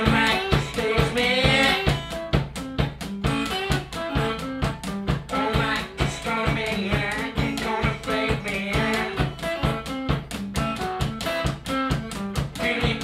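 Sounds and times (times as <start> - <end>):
person singing: 0.0 - 2.2, 5.2 - 9.8, 12.4 - 13.0
guitar: 0.0 - 13.0
steady drum beat: 0.0 - 13.0.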